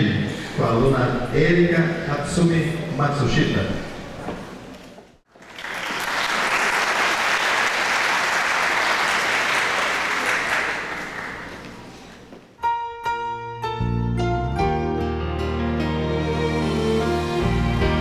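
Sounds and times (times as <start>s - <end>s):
audience applauding: 5.3s - 11.9s
instrumental music: 12.6s - 18.0s.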